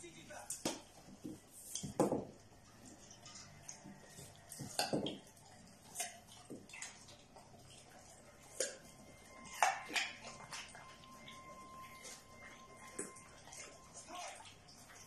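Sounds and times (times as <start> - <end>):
carrot tapping on tile floor: 0.6 - 2.4, 4.6 - 5.2.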